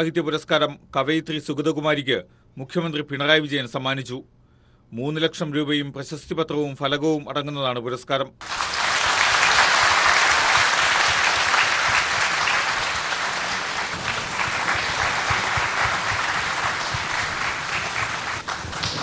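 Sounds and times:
audience applauding: 8.4 - 19.0.

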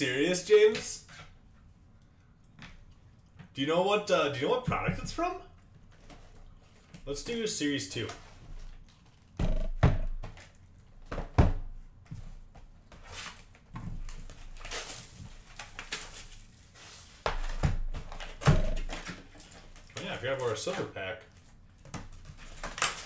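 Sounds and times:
rustling of wrapped packs: 13.0 - 18.4.

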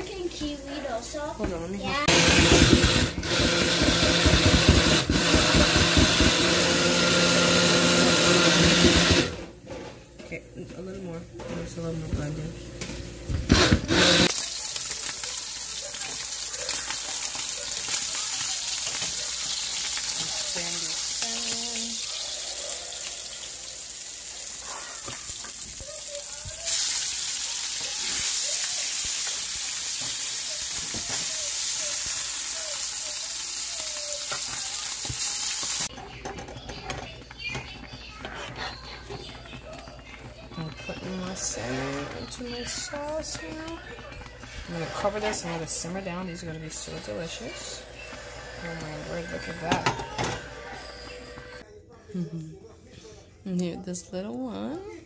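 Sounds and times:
blender motor whirring: 2.1 - 9.4, 13.5 - 15.2
fish sizzling in hot oil: 14.2 - 35.9.

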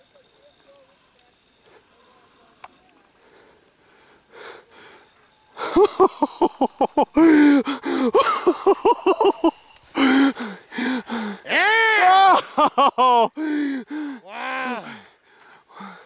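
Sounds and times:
person laughing breathily: 5.6 - 11.5, 12.2 - 15.0
person whooping: 11.4 - 15.0.

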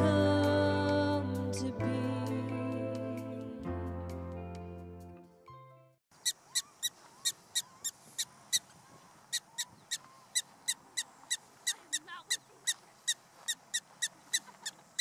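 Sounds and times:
prairie dog barking: 6.2 - 15.0.

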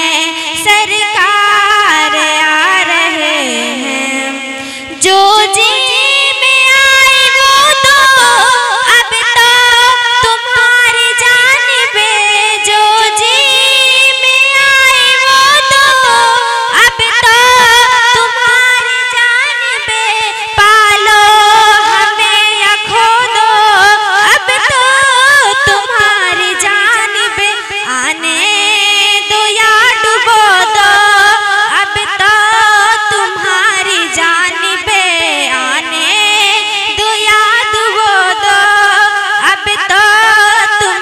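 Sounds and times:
girl singing devotional song: 0.0 - 41.0.

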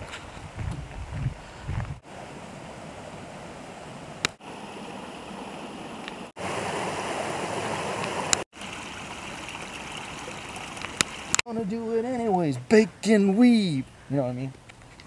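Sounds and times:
running water rushing: 2.0 - 11.5.

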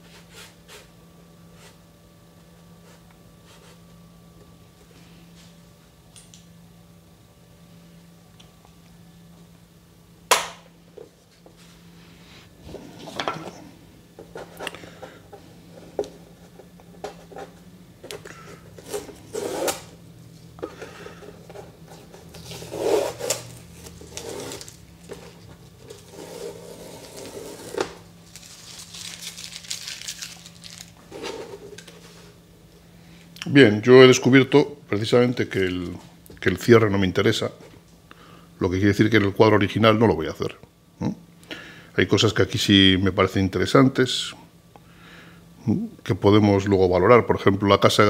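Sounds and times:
masking tape peeling: 22.3 - 25.1, 25.8 - 31.1.

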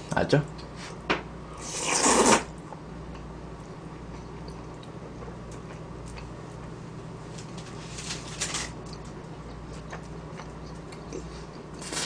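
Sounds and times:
loud noodle slurp: 1.6 - 2.5.

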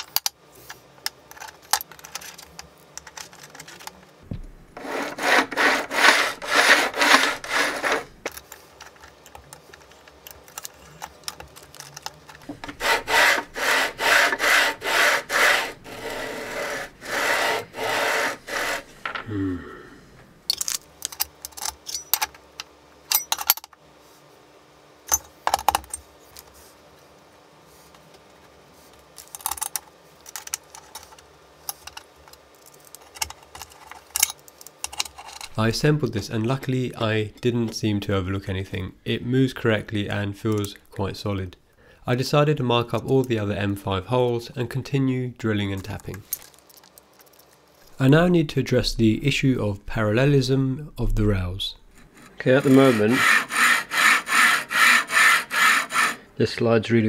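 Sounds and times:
metal parts clicking and knocking: 0.0 - 0.4, 1.0 - 4.1, 7.0 - 12.8, 20.5 - 23.8, 25.1 - 26.0, 29.2 - 35.6, 45.8 - 47.9
metal plate rasping along rails: 4.8 - 8.2, 12.6 - 19.0, 51.9 - 56.2.

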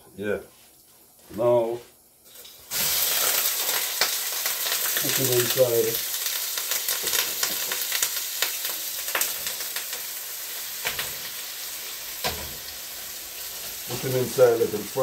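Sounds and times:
meat sizzling in hot oil: 2.2 - 15.0.

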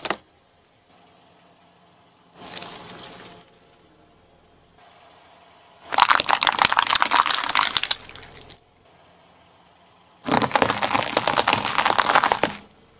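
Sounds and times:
tyre crushing plastic toys: 0.0 - 0.2, 5.9 - 8.6, 10.2 - 12.7
tyre crushing plastic containers: 5.9 - 8.6, 10.3 - 12.7.

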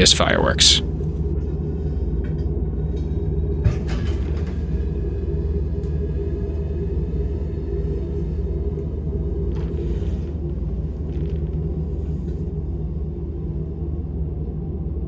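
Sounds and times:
even hum: 0.0 - 15.0
steady low rumble: 0.0 - 15.0
faint crackles: 7.5 - 13.0.

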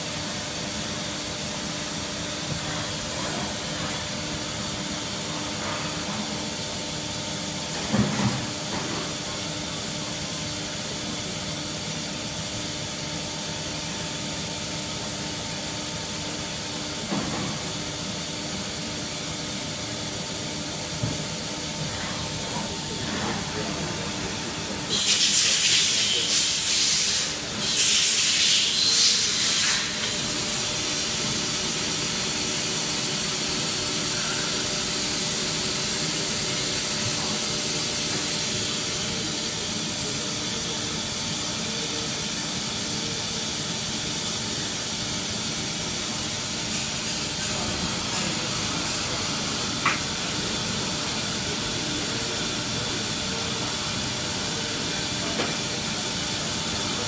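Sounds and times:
machine mechanical hum: 0.0 - 57.0
loud hissing bursts: 24.9 - 30.0.

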